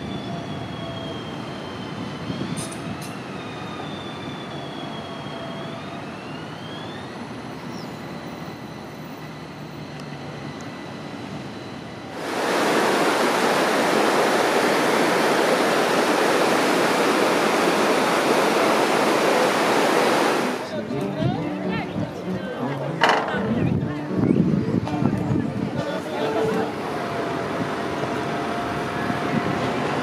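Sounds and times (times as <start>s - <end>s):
tram wheels squealing: 0.0s - 12.2s, 25.8s - 30.0s
loud steady rushing hiss: 12.1s - 20.8s.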